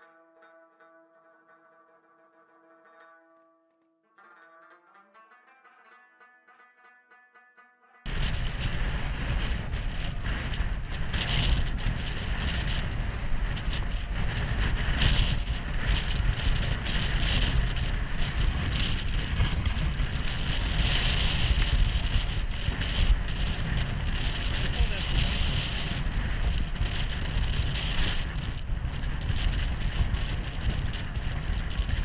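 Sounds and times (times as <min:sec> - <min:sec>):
wind buffeting microphone: 0:08.0 - 0:32.0.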